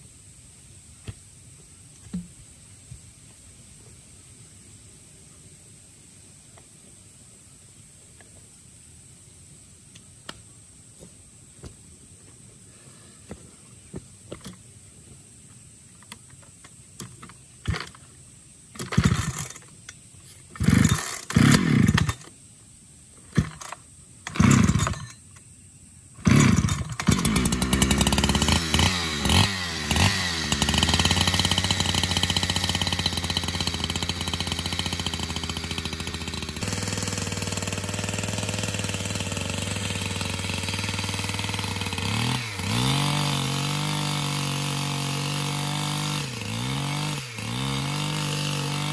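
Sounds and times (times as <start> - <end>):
petrol engine cranking and running: 17.0 - 18.0, 18.8 - 19.7, 20.6 - 22.3, 23.3 - 25.2, 26.2 - 48.9.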